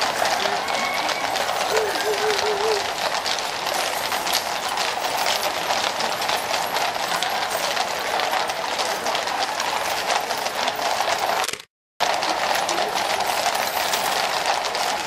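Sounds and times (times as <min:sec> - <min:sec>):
horse hooves clip-clopping on road: 0:00.0 - 0:15.0.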